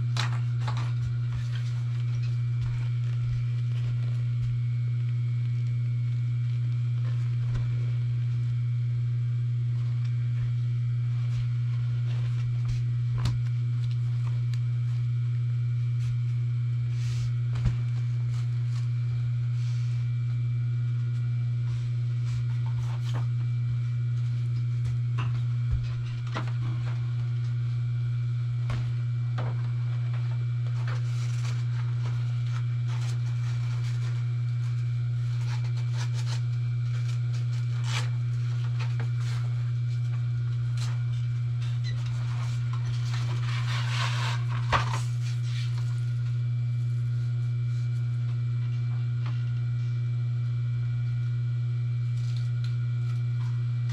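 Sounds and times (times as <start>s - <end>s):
low electric motor hum: 0.0s - 53.9s.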